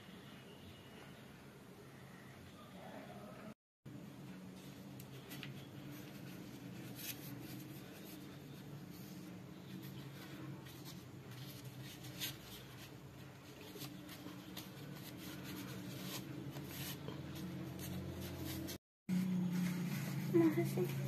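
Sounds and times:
hands handling a leaf: 4.6s - 21.0s.

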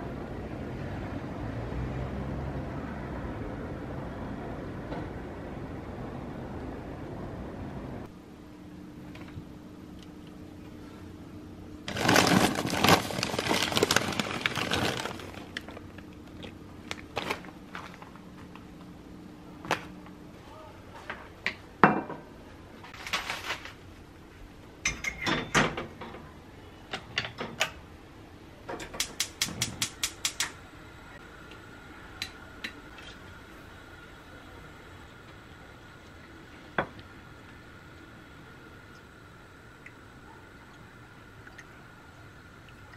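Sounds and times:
plastic snack packets crinkling: 11.9s - 18.2s.

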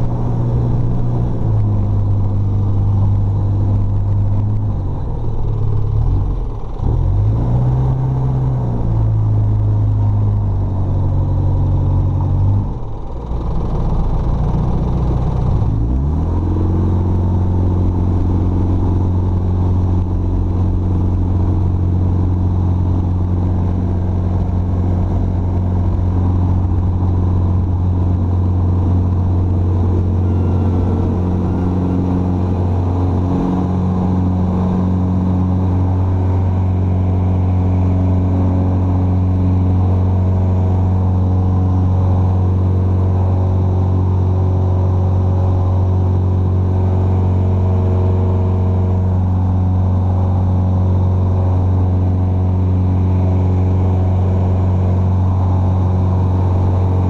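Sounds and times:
aircraft engine and propeller drone: 16.5s - 57.0s.

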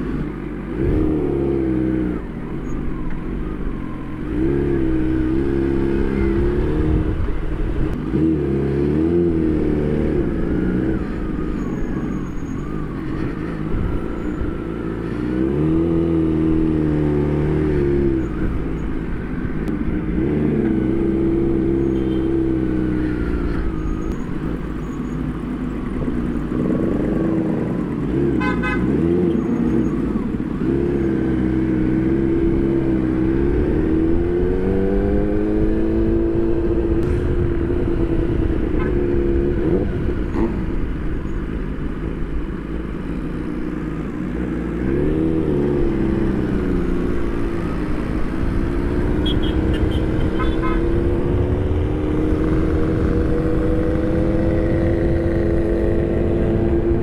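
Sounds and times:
vehicle horn toot: 28.4s - 29.0s, 49.2s - 51.1s.

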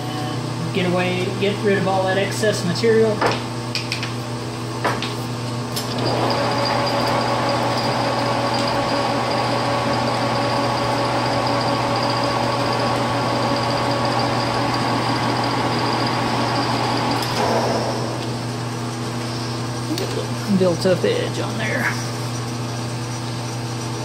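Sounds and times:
lathe gear whine: 5.8s - 20.0s.

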